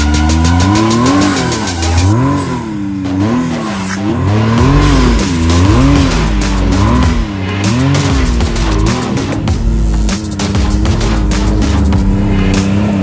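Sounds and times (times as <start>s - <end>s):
engine revving up and down: 0.0s - 13.0s.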